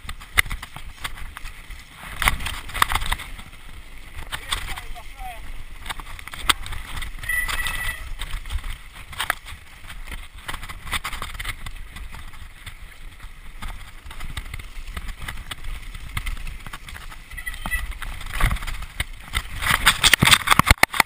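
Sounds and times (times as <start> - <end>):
bike knocks and rattles: 0.0 - 21.0
tyres on dirt trail: 0.0 - 21.0
wind on microphone: 0.0 - 21.0
brief high squeal: 7.2 - 8.1.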